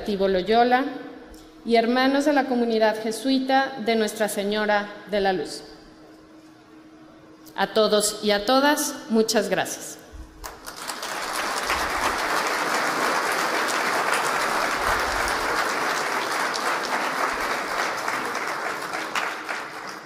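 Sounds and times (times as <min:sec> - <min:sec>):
audience applauding: 0:10.4 - 0:20.0.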